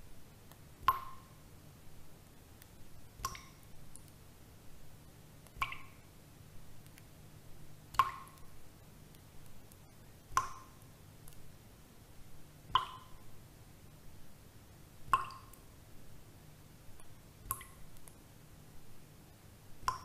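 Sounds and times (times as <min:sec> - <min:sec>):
water drops plopping: 0:00.9 - 0:01.3, 0:03.2 - 0:03.6, 0:05.6 - 0:06.0, 0:08.0 - 0:08.4, 0:12.8 - 0:13.2, 0:15.1 - 0:15.6.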